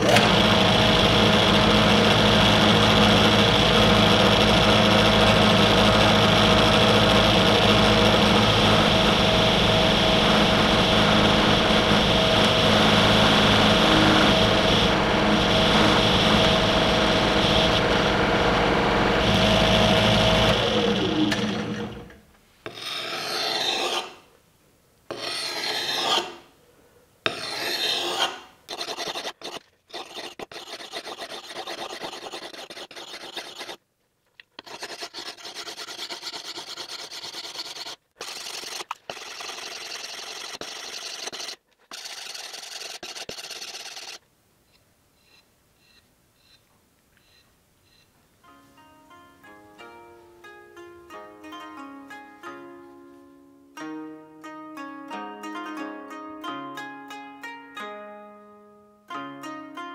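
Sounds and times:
drill press motor running: 0:00.0 - 0:22.2
blade scraping sharpening stone: 0:22.7 - 0:24.2, 0:25.1 - 0:26.4, 0:27.3 - 0:33.8, 0:34.6 - 0:44.2.

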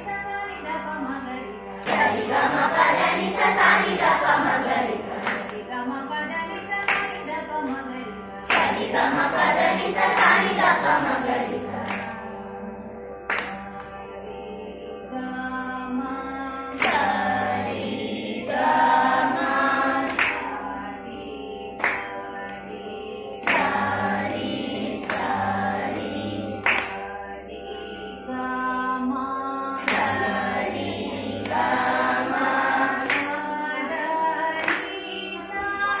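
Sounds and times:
children singing in unison: 0:01.7 - 0:05.7, 0:08.4 - 0:12.3, 0:16.7 - 0:28.3, 0:29.2 - 0:36.0
hand clap: 0:01.7 - 0:05.7, 0:06.5 - 0:12.3, 0:13.2 - 0:14.0, 0:16.7 - 0:17.3, 0:20.0 - 0:20.6, 0:21.8 - 0:22.6, 0:23.4 - 0:27.1, 0:29.8 - 0:30.4, 0:31.4 - 0:32.1, 0:32.9 - 0:33.5, 0:34.5 - 0:36.0
steady drone: 0:15.8 - 0:28.4, 0:29.0 - 0:35.6.

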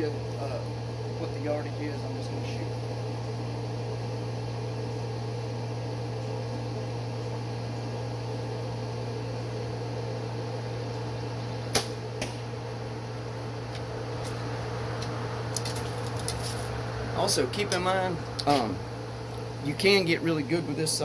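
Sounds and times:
steady low hum: 0:00.0 - 0:21.0
bowstring snapping: 0:11.7 - 0:12.4
arrow hitting target: 0:11.7 - 0:12.5.

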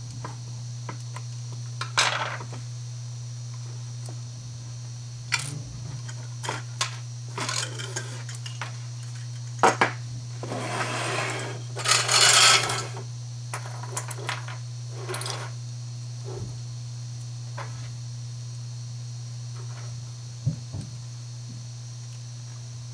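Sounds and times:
steady low hum: 0:00.0 - 0:22.9
sliding scrape: 0:10.4 - 0:13.0.

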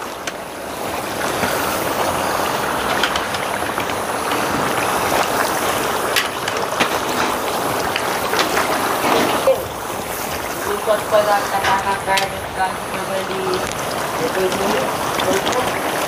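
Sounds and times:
fat crackling and popping: 0:00.0 - 0:16.0
meat sizzling in lard: 0:00.7 - 0:16.0.

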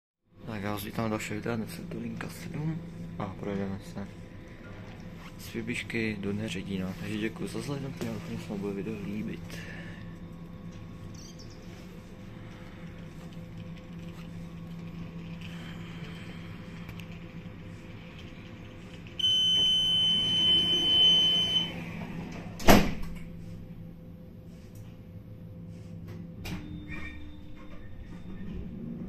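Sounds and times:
low electrical hum: 0:00.3 - 0:29.0
high warning beep: 0:19.2 - 0:21.8
tram doors shutting thud: 0:19.2 - 0:23.4.

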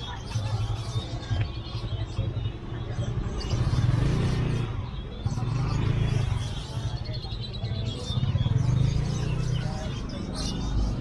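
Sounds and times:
traffic engine hum: 0:00.0 - 0:11.0.

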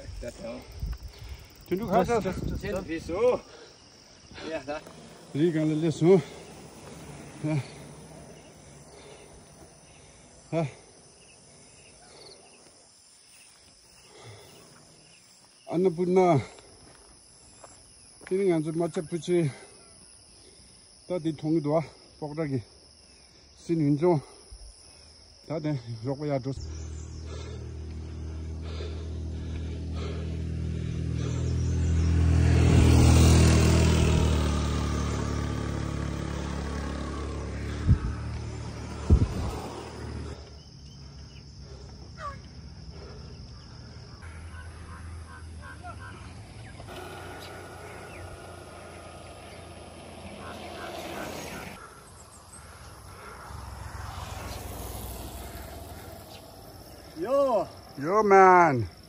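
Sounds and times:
motorbikes riding past: 0:00.0 - 0:12.2, 0:26.5 - 0:59.0.

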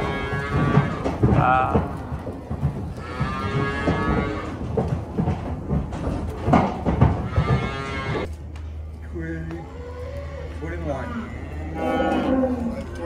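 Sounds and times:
animals knocking and thudding: 0:00.0 - 0:08.3
cattle mooing: 0:03.0 - 0:04.6, 0:09.7 - 0:13.0.

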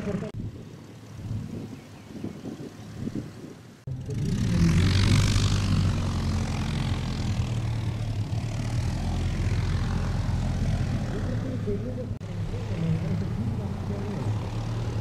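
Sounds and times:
aircraft engine drone: 0:00.0 - 0:15.0.

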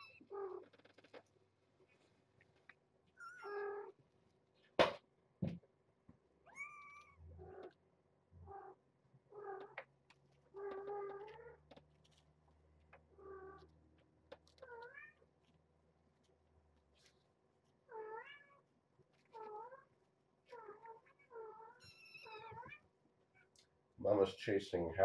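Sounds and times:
kittens meowing: 0:06.5 - 0:07.8, 0:20.5 - 0:22.8.

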